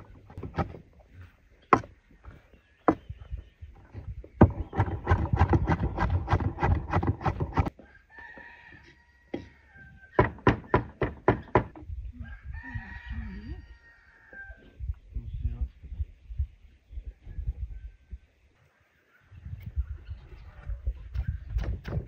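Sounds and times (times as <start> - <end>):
rooster crowing: 7.7 - 10.2, 12.2 - 14.8.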